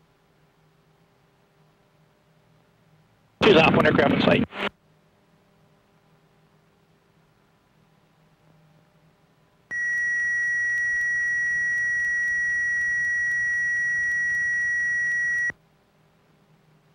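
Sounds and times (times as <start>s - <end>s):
high-pitched electronic tone: 9.7s - 15.5s.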